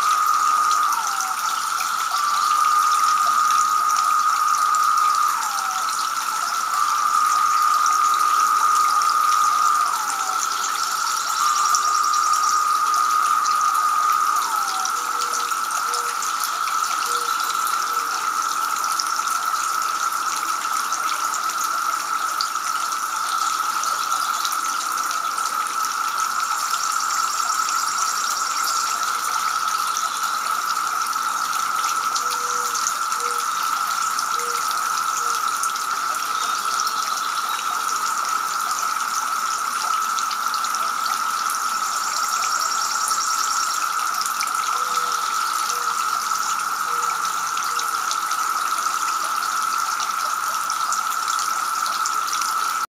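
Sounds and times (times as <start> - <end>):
steady high tone: 0.0 - 20.6
fountain water splashing: 0.0 - 52.9.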